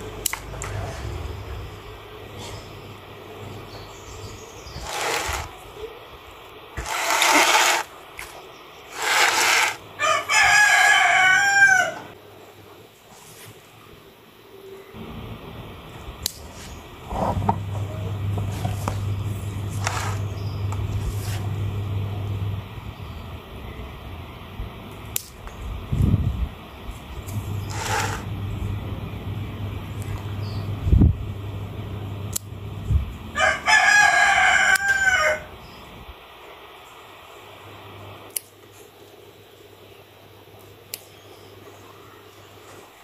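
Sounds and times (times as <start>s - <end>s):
low rumble: 0.0s - 2.4s
low engine hum: 0.0s - 3.1s, 27.1s - 33.4s
scraping rustles: 4.8s - 5.6s, 6.8s - 9.8s, 19.7s - 21.6s, 27.2s - 28.3s.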